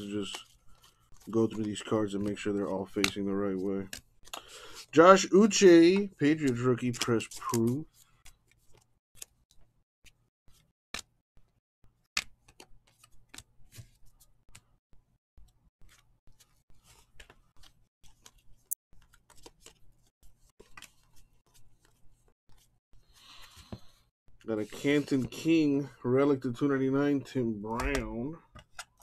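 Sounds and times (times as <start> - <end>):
cards clicking and snapping: 0.2 - 4.5, 5.9 - 9.7, 10.5 - 11.2, 12.1 - 14.8, 15.4 - 19.8, 27.8 - 29.0.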